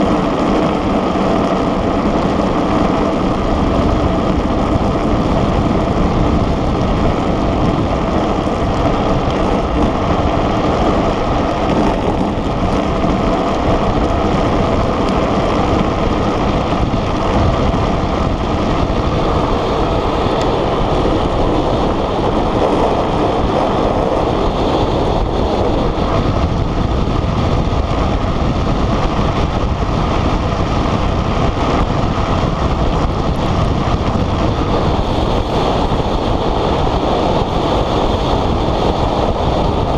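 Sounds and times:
wheels rolling on asphalt: 0.0 - 39.9
wind rushing over microphone: 0.0 - 39.9.

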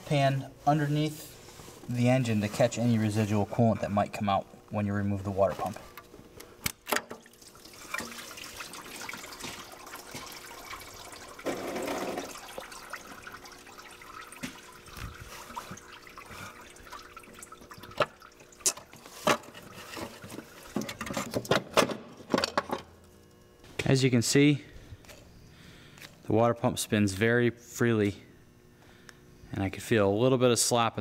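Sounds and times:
coolant trickling into pan: 7.1 - 21.4.

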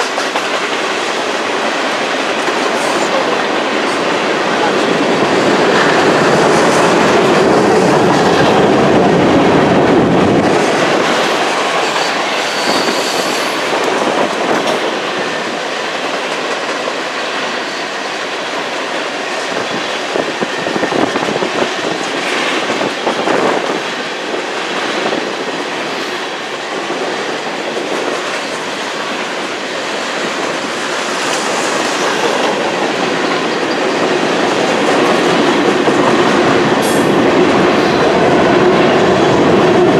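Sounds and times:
freight train wheels rumbling on rail: 0.0 - 39.9
faint high wheel squeal: 12.4 - 13.6.

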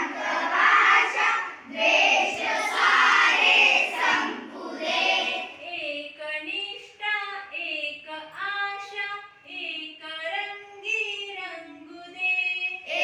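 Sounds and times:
children singing in unison: 0.0 - 5.6.

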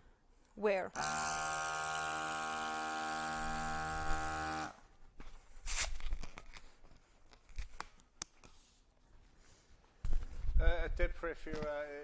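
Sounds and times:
balloon inflator motor humming: 1.0 - 4.8.

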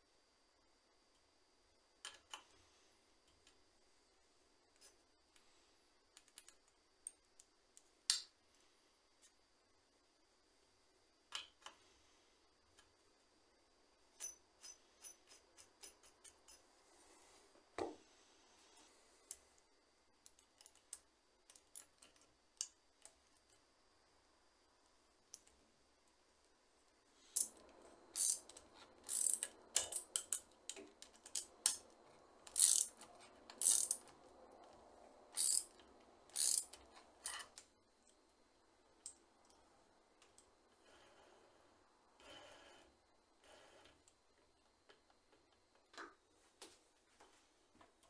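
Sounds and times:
metallic clicks and rasps: 14.2 - 16.7, 27.2 - 38.2.

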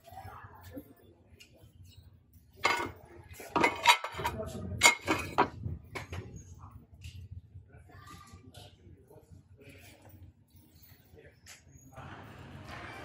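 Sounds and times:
glassware and dishes clinking: 2.6 - 6.2.

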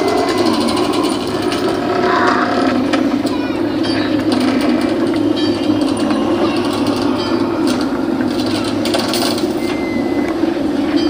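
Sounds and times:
faint creaks and clicks: 0.0 - 10.4.

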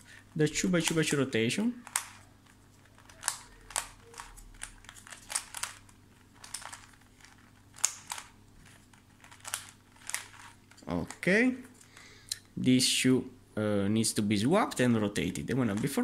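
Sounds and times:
plastic puzzle clicking: 1.8 - 11.2.

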